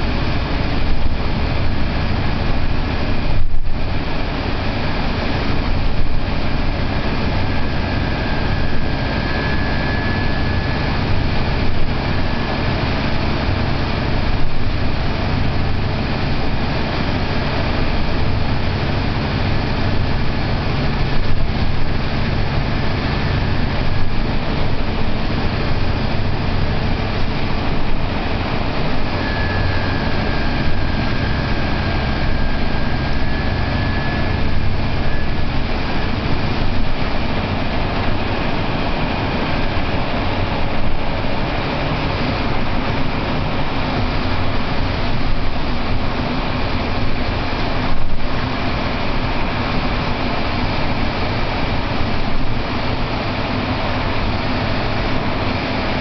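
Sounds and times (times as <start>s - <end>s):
bus engine drone: 0.0s - 56.0s
thin high whine: 0.0s - 56.0s.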